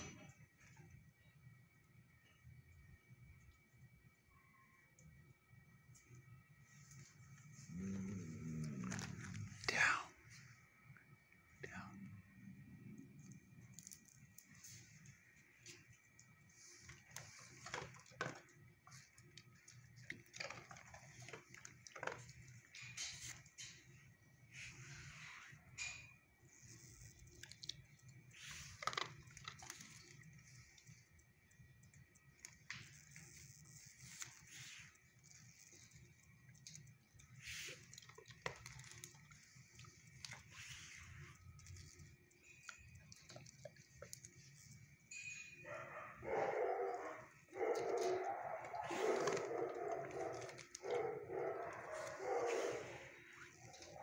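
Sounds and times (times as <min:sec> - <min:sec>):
dog licking concrete floor: 0:13.0 - 0:23.9, 0:26.6 - 0:45.0, 0:46.3 - 0:54.0.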